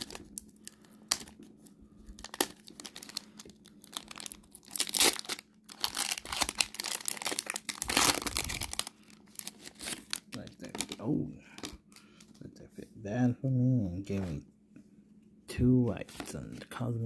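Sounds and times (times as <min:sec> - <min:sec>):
foil wrapper crinkling and tearing: 0:00.0 - 0:01.5, 0:02.1 - 0:11.8.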